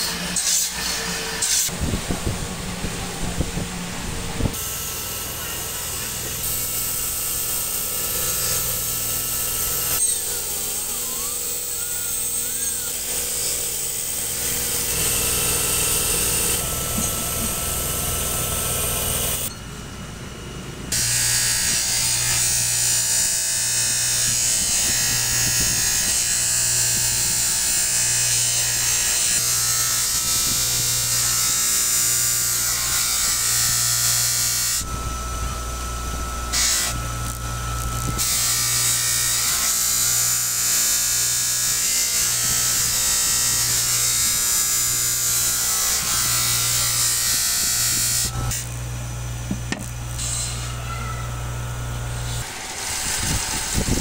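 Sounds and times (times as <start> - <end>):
electric power tools running: 0.0 - 19.5, 20.8 - 54.0
pulsing low hum: 34.2 - 38.8.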